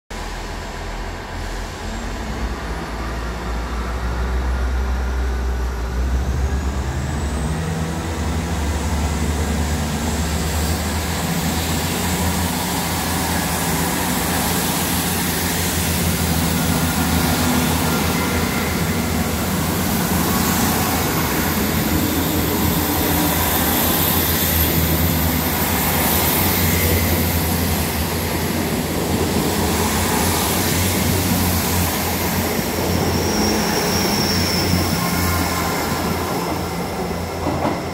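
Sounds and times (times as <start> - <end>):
diesel train engine throttling up: 0.1 - 37.9
train wheels rolling: 9.6 - 37.9.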